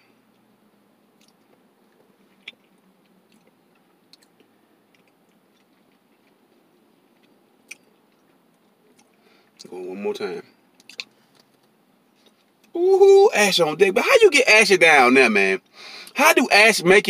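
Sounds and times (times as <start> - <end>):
faint chewing: 1.1 - 9.7, 10.7 - 12.8.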